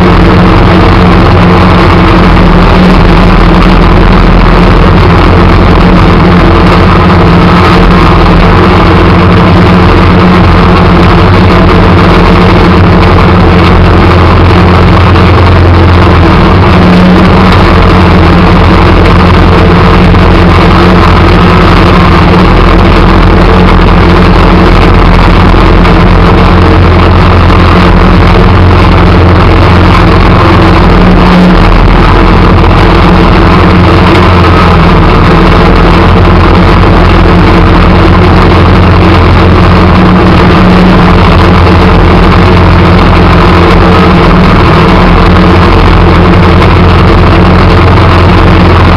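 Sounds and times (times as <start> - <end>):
vehicle engine running: 0.0 - 48.9.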